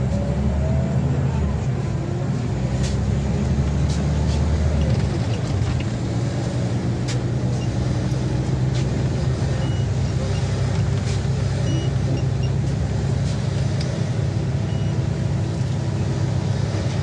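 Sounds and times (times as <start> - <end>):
bus engine hum: 0.0 - 17.0
road noise: 0.0 - 17.0.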